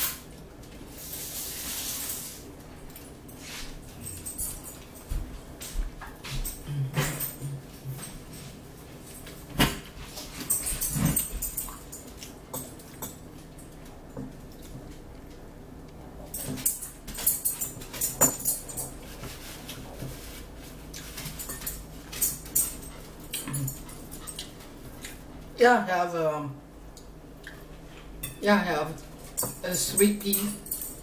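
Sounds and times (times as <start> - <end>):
chewing and lip-smacking: 23.0 - 25.2, 27.0 - 27.7.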